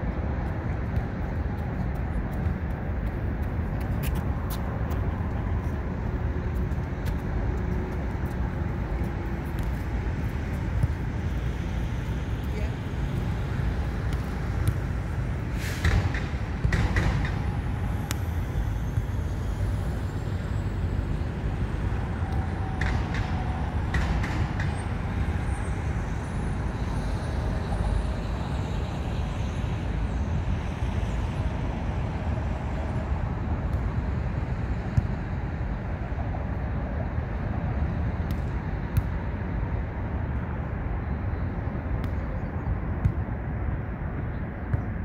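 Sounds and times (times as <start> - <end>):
traffic rumble: 0.0 - 45.0.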